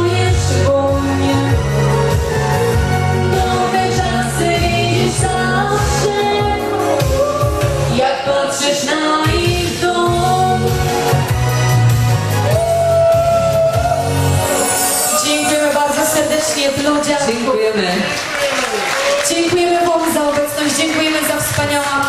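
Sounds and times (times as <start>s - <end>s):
female duo singing pop song: 0.0s - 11.2s
instrumental backing: 0.0s - 17.4s.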